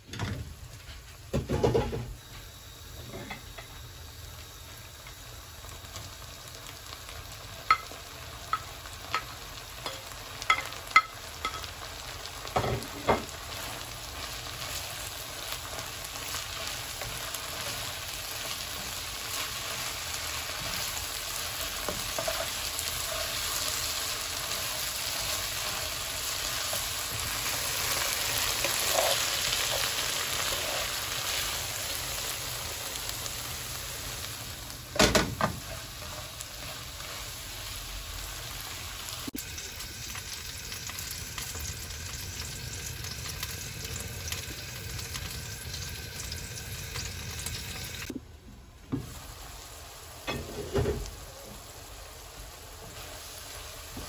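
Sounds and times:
frying sizzle: 0:00.0 - 0:54.0
spatula stirring in pan: 0:12.6 - 0:32.2, 0:35.4 - 0:37.8.

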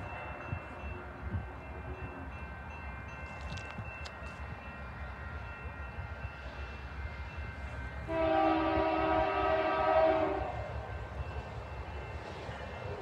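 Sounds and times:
train horn blast: 0:08.0 - 0:10.8.

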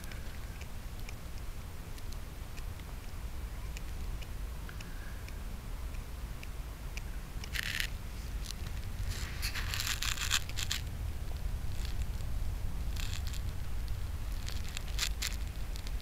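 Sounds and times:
cat chewing and tearing: 0:07.3 - 0:16.0
low rumble: 0:07.5 - 0:16.0.

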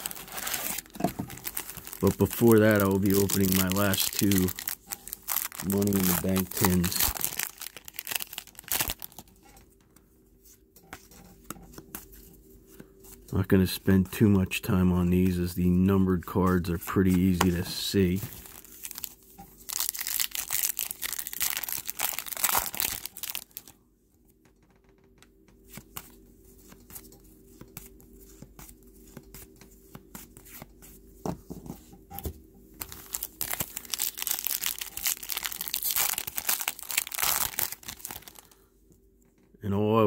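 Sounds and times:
wrappers torn and crinkled: 0:00.0 - 0:09.4, 0:17.3 - 0:23.7, 0:32.8 - 0:38.6.

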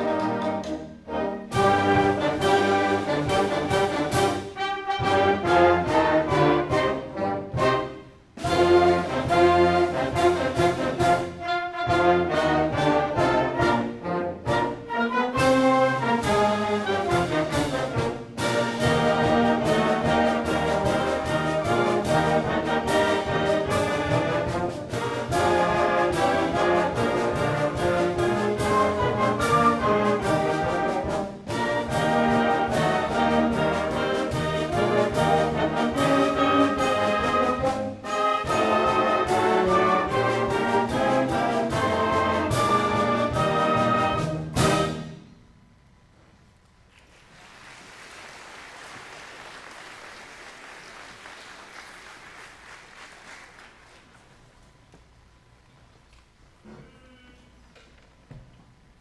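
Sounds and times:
concert band playing: 0:00.0 - 0:45.2.

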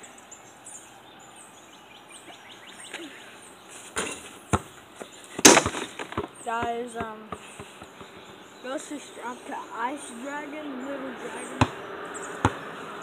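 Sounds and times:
sharp knocks and thumps: 0:04.0 - 0:08.3.

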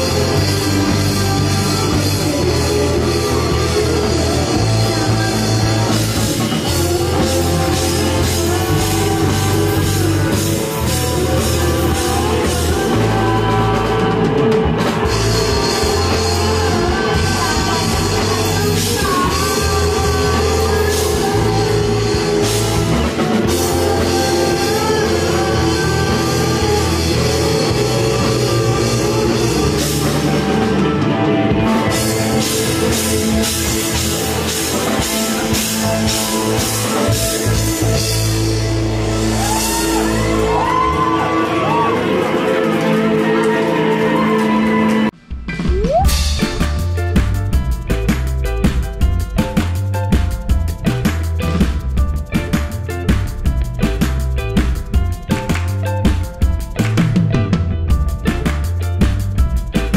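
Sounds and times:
boy singing lead vocals: 0:00.0 - 0:38.3
loud rock band playing: 0:00.0 - 0:59.9.

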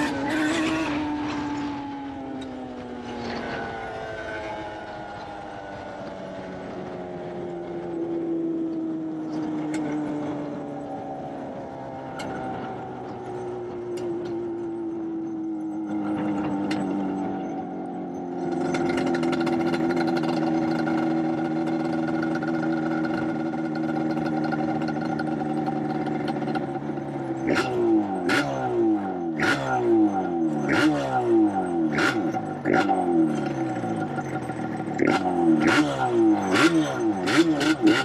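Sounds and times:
two-stroke engine revving: 0:00.0 - 0:03.9, 0:18.4 - 0:38.0.

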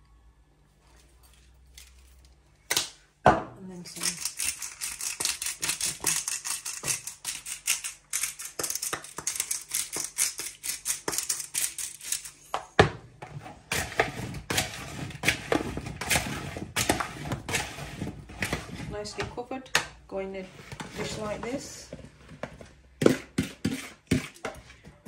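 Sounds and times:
potato wedges turned by hand: 0:03.9 - 0:12.6
spoon scraping plastic bowl: 0:13.3 - 0:19.4, 0:20.5 - 0:24.8.

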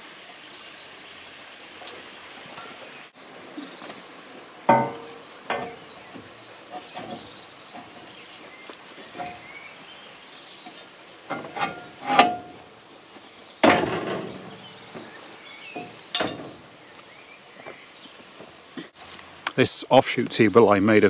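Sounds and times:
metal clanks and knocks: 0:04.6 - 0:08.4, 0:09.0 - 0:09.6, 0:10.6 - 0:12.7, 0:13.6 - 0:16.7.

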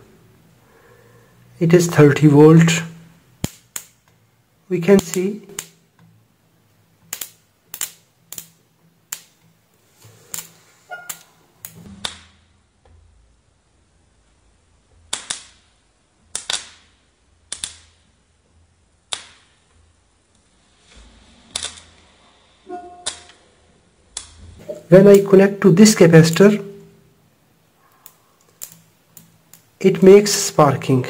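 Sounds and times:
sharp electrical snaps: 0:03.3 - 0:04.2, 0:04.8 - 0:06.1, 0:07.0 - 0:09.6, 0:10.2 - 0:12.4, 0:15.1 - 0:18.2, 0:19.0 - 0:19.7, 0:21.5 - 0:22.0, 0:27.8 - 0:30.5.

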